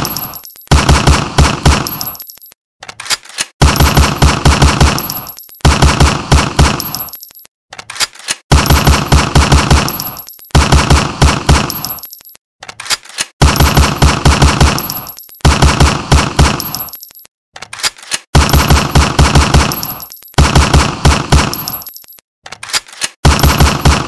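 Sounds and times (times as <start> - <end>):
pistol firing rapid shots: 0.0 - 2.1, 3.6 - 7.0, 8.5 - 12.0, 13.4 - 16.9, 18.4 - 21.8, 23.2 - 24.0.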